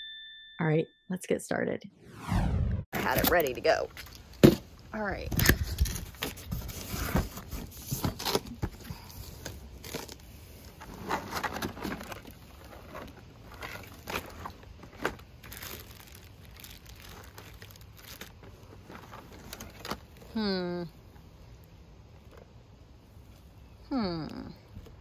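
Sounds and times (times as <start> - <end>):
cardboard and plastic bag rustling: 5.3 - 20.3.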